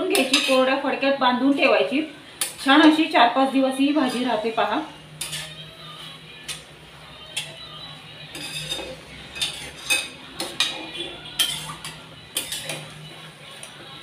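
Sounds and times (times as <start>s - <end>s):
spatula scraping steel pan: 0.1s - 0.7s, 4.0s - 4.5s, 5.1s - 5.7s, 8.3s - 13.0s
spatula clinking against pan: 8.3s - 12.9s.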